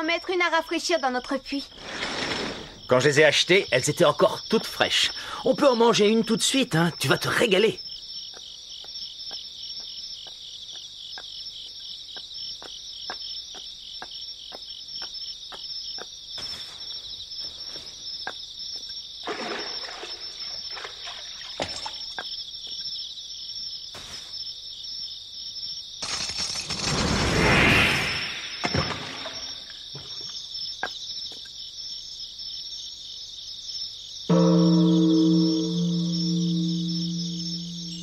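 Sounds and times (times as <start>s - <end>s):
crickets chirring: 0.0s - 38.0s.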